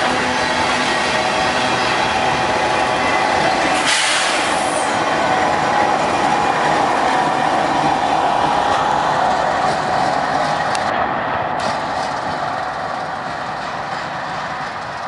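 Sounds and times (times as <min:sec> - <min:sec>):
diesel locomotive passing: 0:00.0 - 0:15.0
train wheels rumbling on rail: 0:00.0 - 0:15.0.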